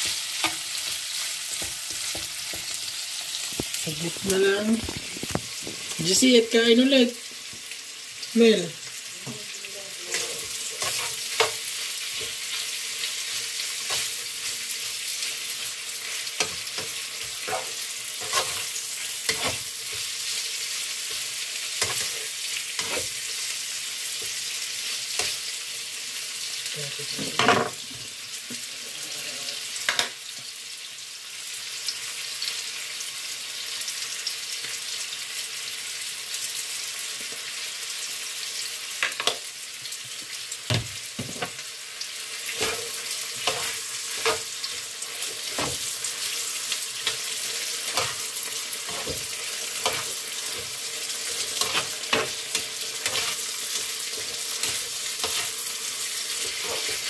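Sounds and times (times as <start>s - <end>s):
spatula scraping and tapping pan: 0.0s - 2.8s, 10.1s - 12.6s, 16.0s - 20.1s, 21.8s - 23.4s, 42.5s - 44.5s, 45.2s - 46.4s, 47.0s - 55.6s, 56.3s - 57.0s
meat sizzling in a pan: 0.0s - 57.0s.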